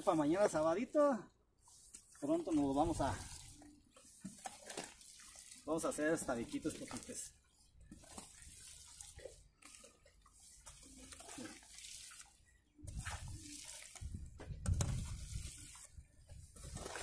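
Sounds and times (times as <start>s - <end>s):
hoe scraping wet mud: 0.0s - 0.9s, 1.6s - 17.0s.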